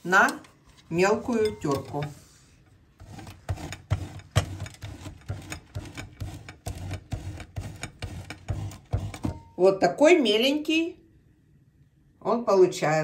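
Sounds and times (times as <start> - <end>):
cheese grater scraping: 3.0 - 9.4.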